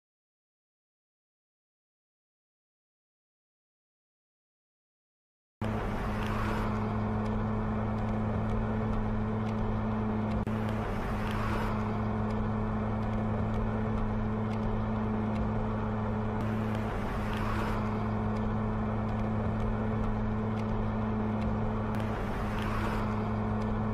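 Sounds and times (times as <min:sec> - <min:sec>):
car engine running: 0:05.6 - 0:23.9.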